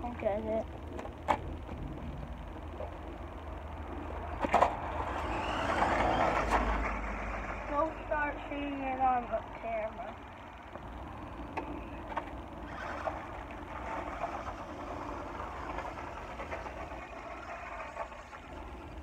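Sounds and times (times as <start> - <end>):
toy car rolling over gravel: 4.4 - 10.0, 12.1 - 19.0.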